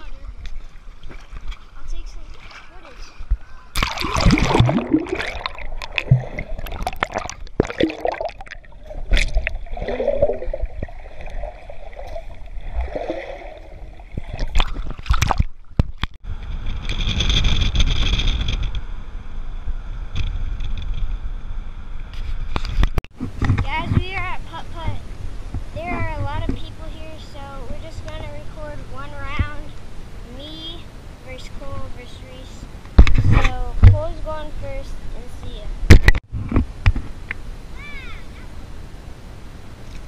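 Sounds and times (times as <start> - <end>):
water sloshing and gurgling: 0.0 - 16.2.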